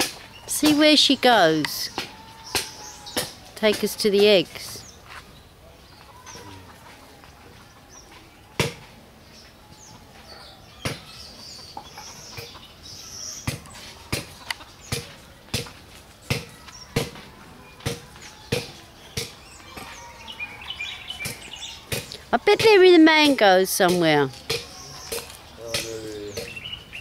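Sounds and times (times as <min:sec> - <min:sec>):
birds chirping: 0:00.0 - 0:27.0
footsteps on hard dirt: 0:04.7 - 0:05.3
chickens clucking: 0:05.7 - 0:08.8, 0:10.0 - 0:22.9.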